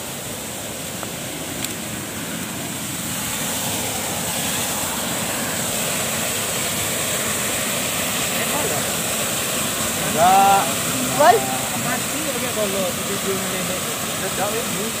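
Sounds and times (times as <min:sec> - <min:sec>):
waterfall and river rushing: 0:00.0 - 0:15.0.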